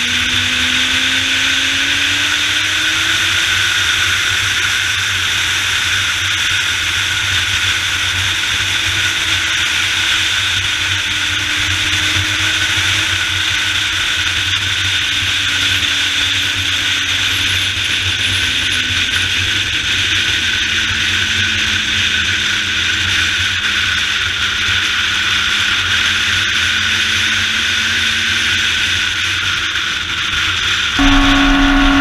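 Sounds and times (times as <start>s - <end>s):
motorcycle engine running: 31.0s - 32.0s
road noise: 31.0s - 32.0s.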